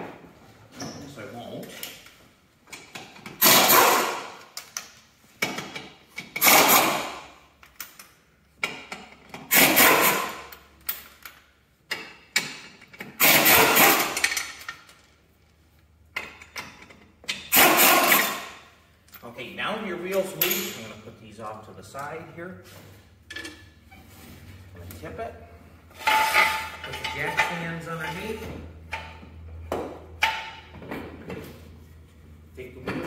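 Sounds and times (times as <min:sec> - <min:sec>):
air impact wrench hammering: 0:02.9 - 0:04.6, 0:05.4 - 0:07.4, 0:08.6 - 0:10.5, 0:12.0 - 0:14.6, 0:16.2 - 0:18.6.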